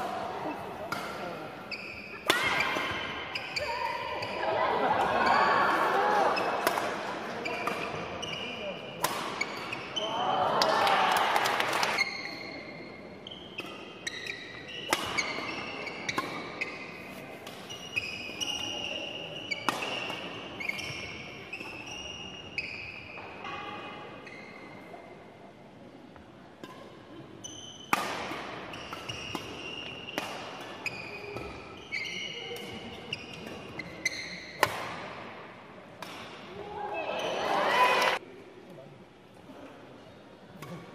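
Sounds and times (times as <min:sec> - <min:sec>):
rackets hitting shuttlecock: 0:00.0 - 0:04.4, 0:06.2 - 0:09.9, 0:13.6 - 0:22.0, 0:27.9 - 0:31.7, 0:32.5 - 0:35.2, 0:36.0 - 0:36.6
shoe squeaks on wooden floor: 0:30.8 - 0:32.5.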